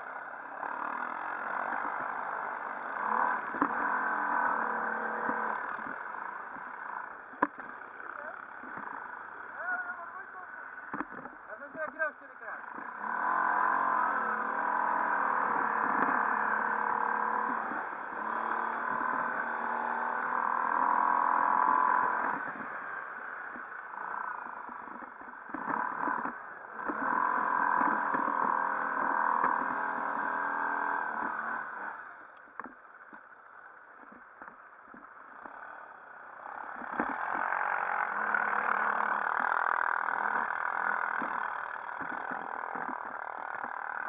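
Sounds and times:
atv engines revving: 0:00.0 - 0:44.0.

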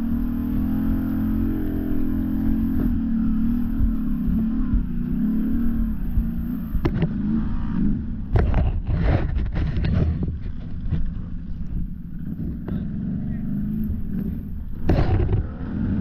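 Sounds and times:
atv engine varying throttle: 0:00.0 - 0:16.0.

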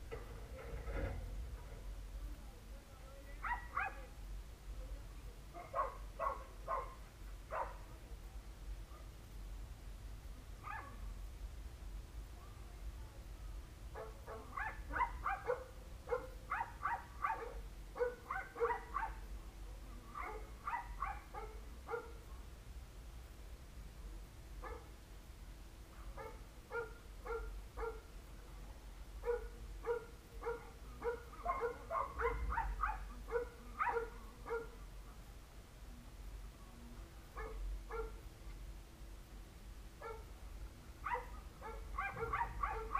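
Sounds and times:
dog barking: 0:03.4 - 0:04.1, 0:05.6 - 0:07.8, 0:10.6 - 0:11.0, 0:14.0 - 0:19.2, 0:20.2 - 0:22.2, 0:24.6 - 0:24.9, 0:26.0 - 0:28.1, 0:29.2 - 0:34.8, 0:37.4 - 0:38.2, 0:40.0 - 0:40.3, 0:41.0 - 0:42.9.

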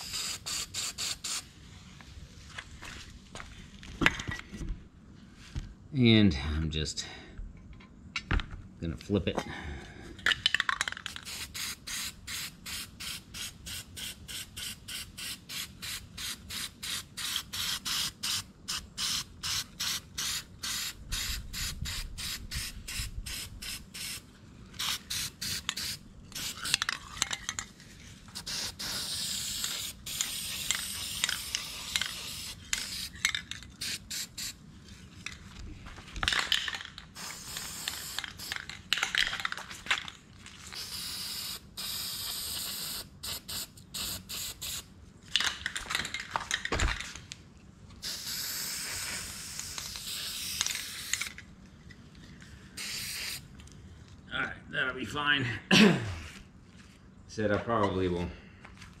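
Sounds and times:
aerosol can spraying: 0:00.0 - 0:01.4, 0:11.1 - 0:24.2, 0:24.8 - 0:26.8, 0:28.3 - 0:33.2, 0:33.8 - 0:34.6, 0:37.2 - 0:38.6, 0:40.8 - 0:44.8, 0:48.0 - 0:51.4, 0:52.8 - 0:53.4.

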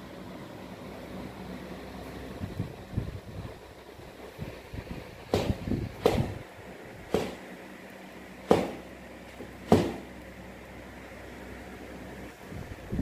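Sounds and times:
sharp knocks: 0:05.3 - 0:06.4, 0:07.1 - 0:07.4, 0:08.5 - 0:08.9, 0:09.6 - 0:10.1.

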